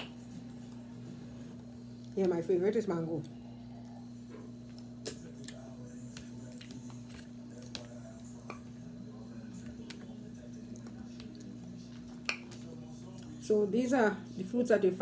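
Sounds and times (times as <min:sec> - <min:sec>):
steady low hum: 0:00.0 - 0:15.0
chewing and wet mouth sounds: 0:03.2 - 0:13.4.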